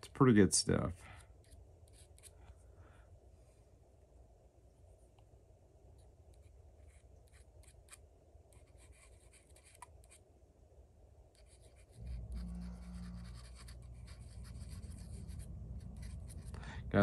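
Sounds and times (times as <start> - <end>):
low steady rumble: 10.4 - 17.0
scratching and rubbing on metal: 11.4 - 16.6.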